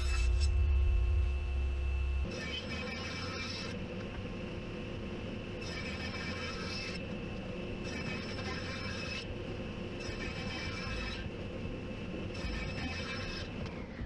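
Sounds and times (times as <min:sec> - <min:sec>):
table saw cutting wood: 0:02.3 - 0:03.8.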